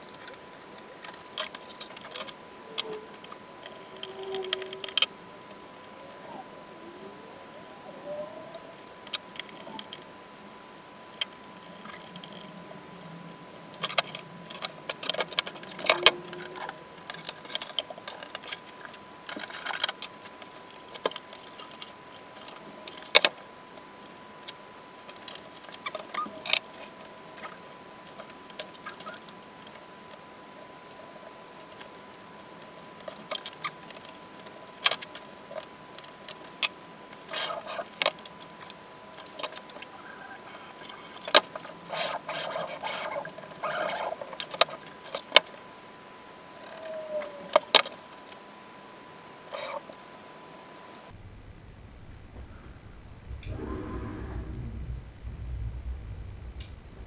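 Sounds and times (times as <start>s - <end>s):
steady thin tone: 51.1s - 57.0s.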